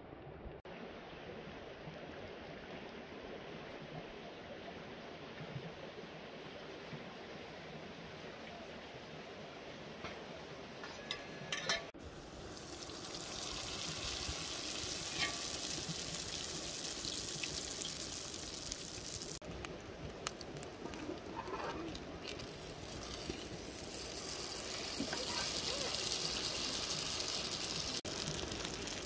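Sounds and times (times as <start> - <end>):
oil sizzling in a pan: 11.9 - 19.4, 21.4 - 29.0.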